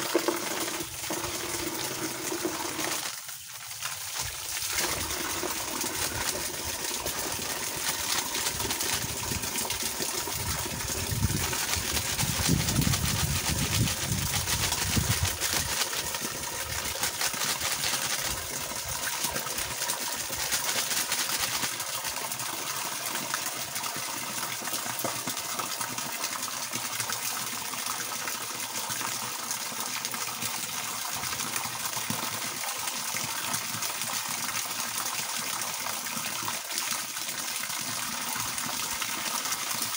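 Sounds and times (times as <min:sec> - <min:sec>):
water pouring from garden hose: 0:00.0 - 0:39.9.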